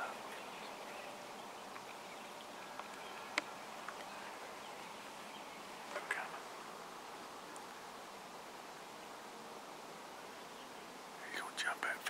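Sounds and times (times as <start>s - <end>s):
faint hiss: 0.0s - 12.0s
small ticks: 2.6s - 4.1s, 7.5s - 7.8s.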